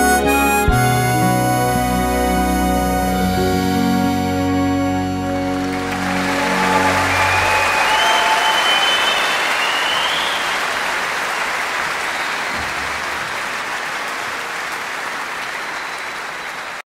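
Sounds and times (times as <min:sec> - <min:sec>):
audience applauding: 0:05.3 - 0:16.8.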